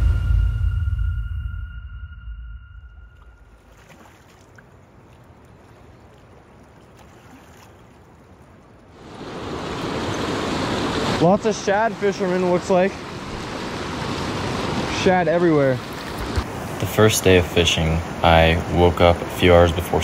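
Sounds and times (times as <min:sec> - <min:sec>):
river water rushing over rocks: 0:09.0 - 0:20.0.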